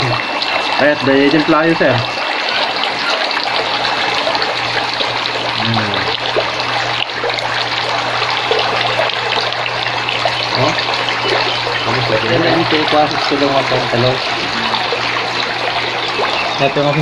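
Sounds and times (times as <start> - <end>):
low steady hum: 0.0 - 17.0
water running and splashing: 0.0 - 17.0.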